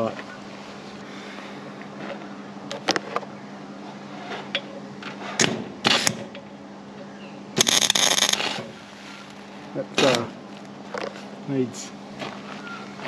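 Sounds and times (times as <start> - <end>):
welding arc crackling: 7.6 - 9.4.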